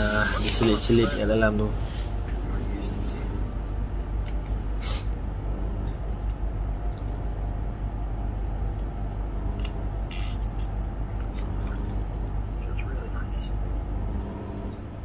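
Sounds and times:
steady low hum: 0.0s - 15.0s
short hissy sounds: 4.8s - 5.1s.

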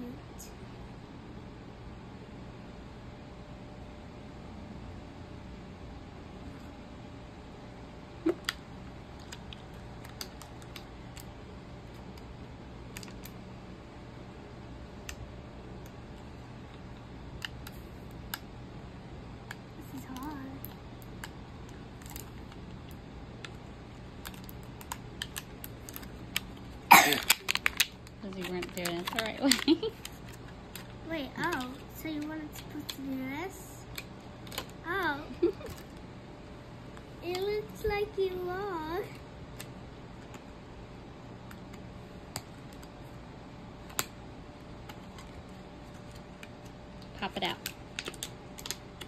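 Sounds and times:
faint steady hum: 0.0s - 49.0s
small plastic pieces clicking: 47.6s - 49.0s.

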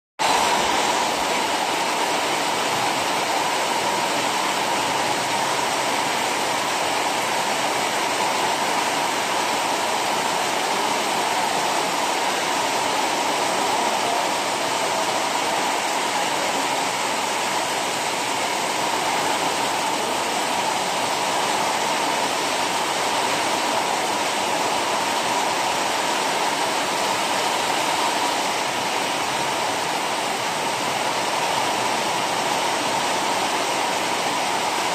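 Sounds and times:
heavy rain pouring: 0.2s - 34.9s.

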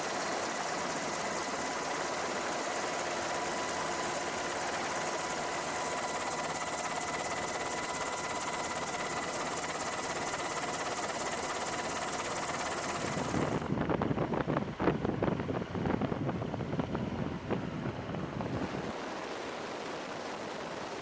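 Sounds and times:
helicopter rotor chopping: 0.0s - 13.9s, 18.3s - 21.0s
engine drone with high whine: 0.0s - 21.0s.

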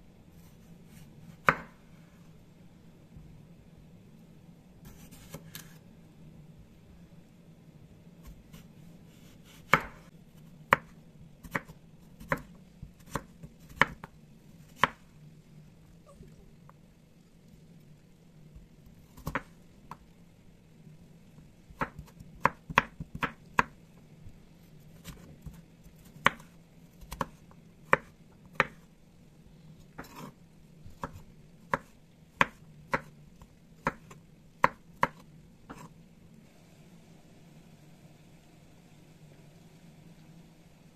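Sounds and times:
knife chopping on wooden board: 9.4s - 10.0s.

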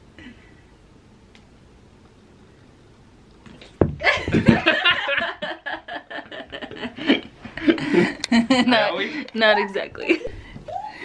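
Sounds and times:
sudden thump: 3.8s - 4.8s
people laughing heartily: 4.0s - 9.3s.

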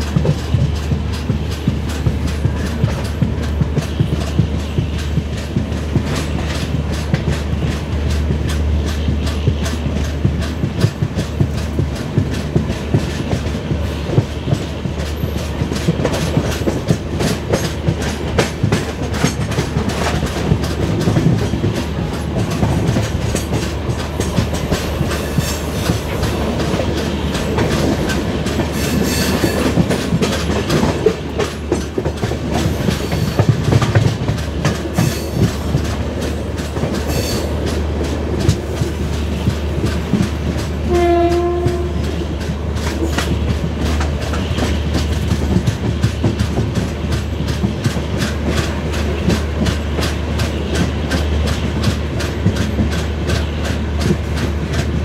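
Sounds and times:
train wheels clattering over rails: 0.0s - 55.0s
locomotive horn: 40.8s - 42.1s.

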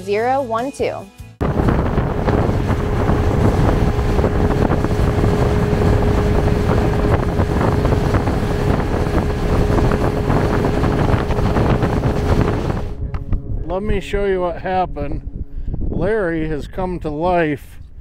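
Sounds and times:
rushing water: 1.4s - 13.0s
boat motor hum: 1.4s - 15.8s
wind buffeting microphone: 1.4s - 18.0s.

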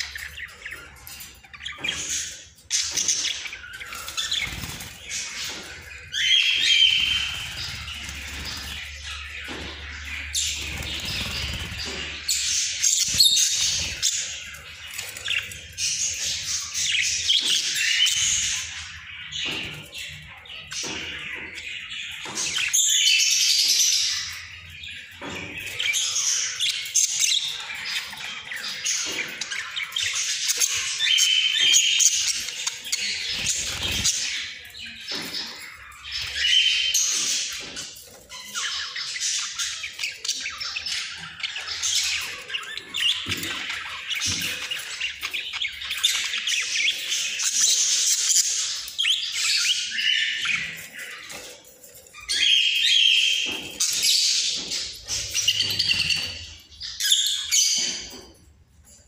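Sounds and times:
budgerigars warbling and chattering: 0.0s - 59.0s
wings fluttering: 4.1s - 6.2s, 6.8s - 9.3s, 10.4s - 12.1s.

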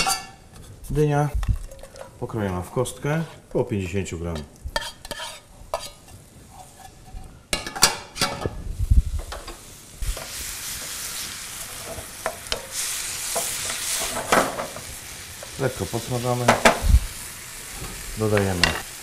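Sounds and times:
food sizzling in oil: 4.4s - 19.0s.

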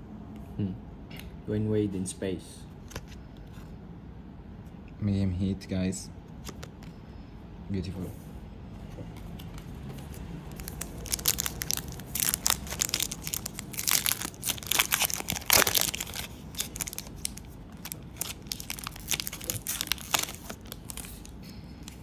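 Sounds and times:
foil wrapper crinkling and tearing: 10.0s - 22.0s.

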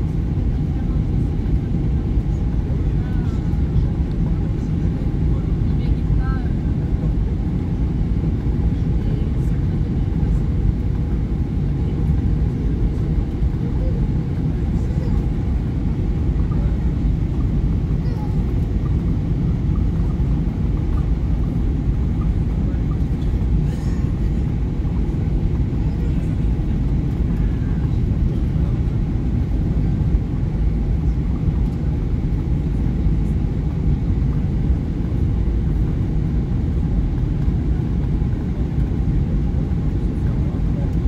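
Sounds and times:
airliner cabin rumble: 0.0s - 41.0s.

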